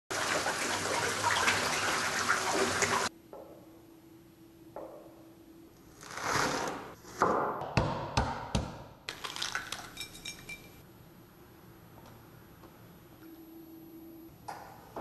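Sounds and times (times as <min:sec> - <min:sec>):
egg shell crackling: 0:09.1 - 0:10.2.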